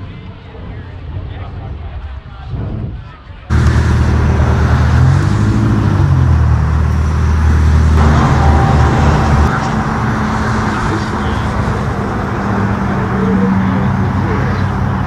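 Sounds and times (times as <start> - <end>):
car engines driving off slowly: 3.5 - 15.0.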